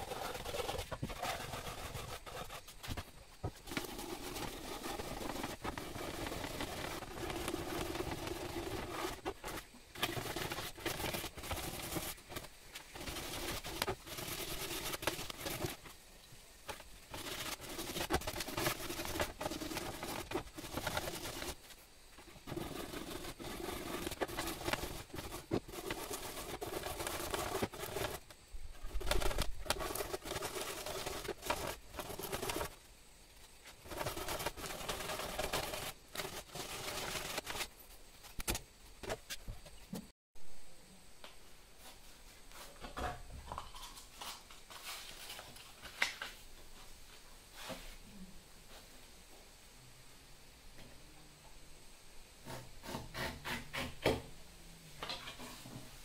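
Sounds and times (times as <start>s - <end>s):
sandpaper rasping on wood: 0.0s - 2.8s, 17.1s - 21.6s, 22.4s - 28.2s, 29.0s - 32.8s, 33.8s - 37.7s.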